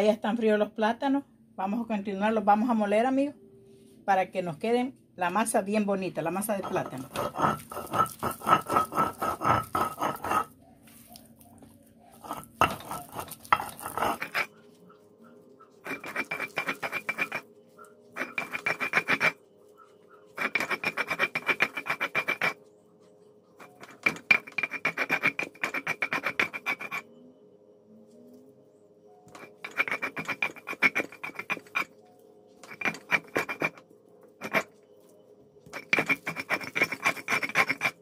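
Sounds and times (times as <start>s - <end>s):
stone roller grinding on stone: 6.3s - 10.6s, 12.1s - 14.6s, 15.8s - 17.5s, 18.1s - 19.4s, 20.3s - 22.7s, 23.6s - 27.1s, 29.3s - 32.0s, 32.6s - 34.9s, 35.6s - 38.0s.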